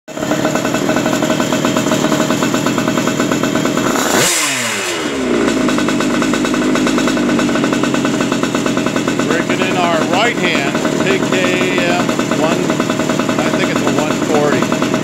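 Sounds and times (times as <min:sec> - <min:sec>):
engine revving: 0:00.1 - 0:15.0
two-stroke engine idling: 0:00.1 - 0:15.0.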